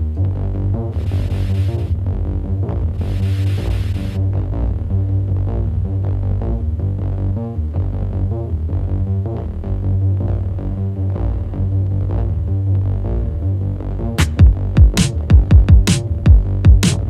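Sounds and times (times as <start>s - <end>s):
deep steady bass: 0.0s - 17.0s
electronic beat: 3.0s - 4.2s, 14.2s - 17.0s.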